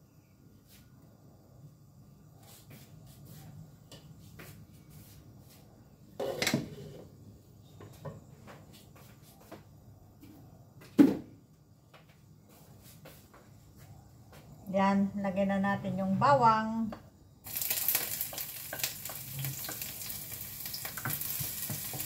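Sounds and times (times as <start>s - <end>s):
kitchen items knocking and clicking: 20.9s - 22.0s.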